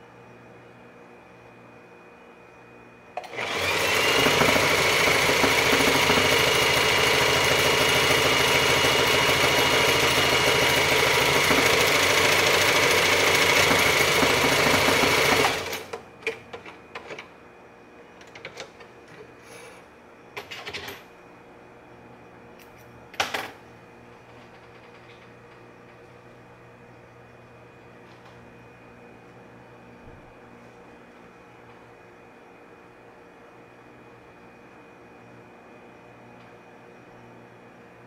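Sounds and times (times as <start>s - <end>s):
sewing machine running fast: 3.2s - 16.0s.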